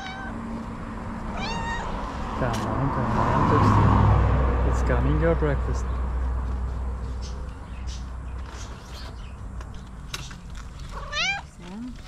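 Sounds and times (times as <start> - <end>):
cat meowing: 0.0 - 0.4, 1.3 - 2.2, 10.9 - 11.6.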